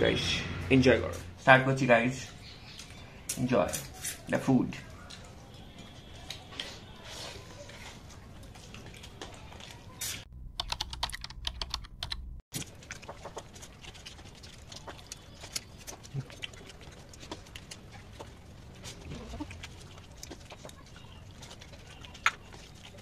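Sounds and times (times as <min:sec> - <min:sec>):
keyboard typing clicks: 0:10.5 - 0:12.4.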